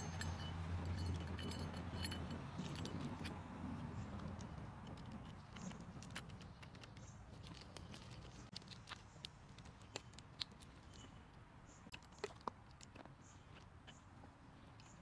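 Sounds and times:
metal parts handled: 0.0 - 3.3.

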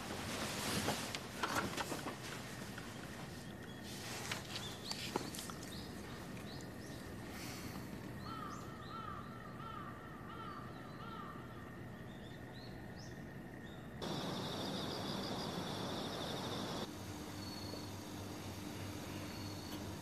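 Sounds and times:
low steady hum: 2.3 - 20.0
small birds chirping: 3.2 - 18.4
steady hiss: 14.0 - 20.0.

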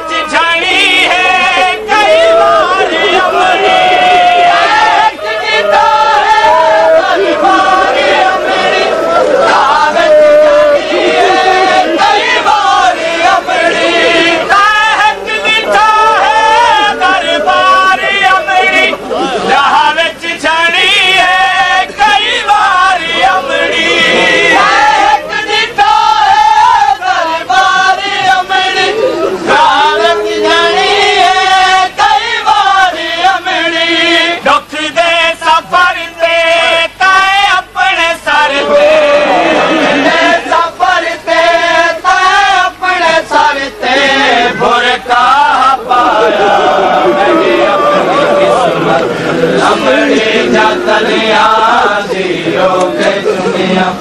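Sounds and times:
group chanting a lament: 0.0 - 54.0.

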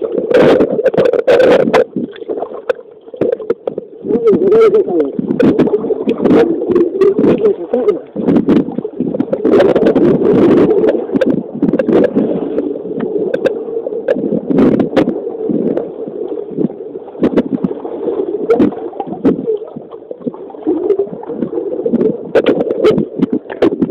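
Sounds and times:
water sloshing and bubbling underwater: 0.0 - 23.9
sharp clicks and knocks: 13.0 - 14.2.

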